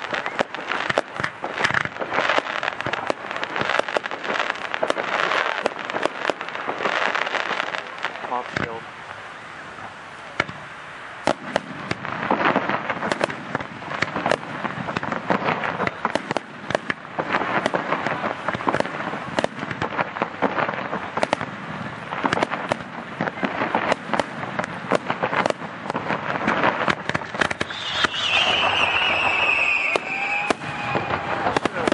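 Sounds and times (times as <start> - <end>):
fireworks shells bursting: 22.2 - 31.9.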